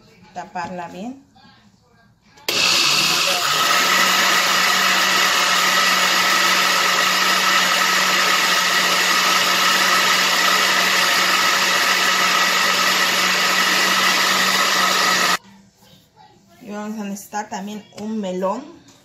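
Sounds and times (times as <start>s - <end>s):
blender running: 2.5s - 15.4s.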